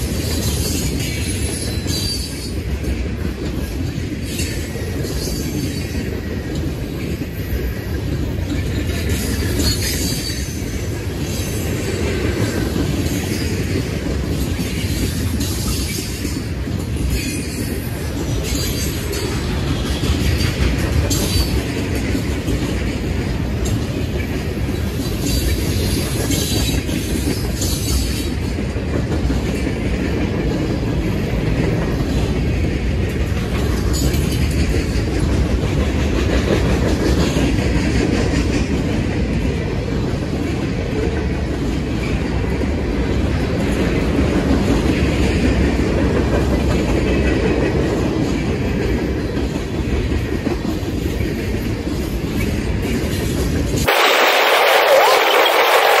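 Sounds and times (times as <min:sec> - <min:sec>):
steel wheels rumbling on rails: 0:00.0 - 0:56.0.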